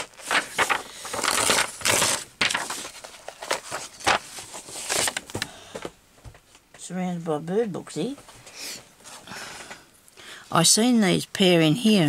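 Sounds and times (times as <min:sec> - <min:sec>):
paper rustling and crinkling: 0:00.0 - 0:05.9.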